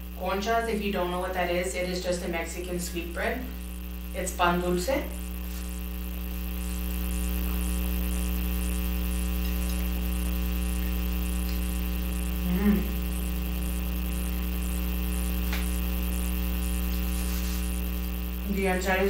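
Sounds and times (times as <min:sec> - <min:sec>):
electrical mains hum: 0:00.0 - 0:19.0
person murmuring: 0:12.4 - 0:13.1.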